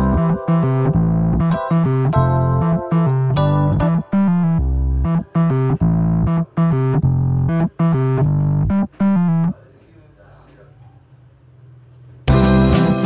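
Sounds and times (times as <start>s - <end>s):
keyboard chords: 0.0s - 9.6s, 12.3s - 13.0s.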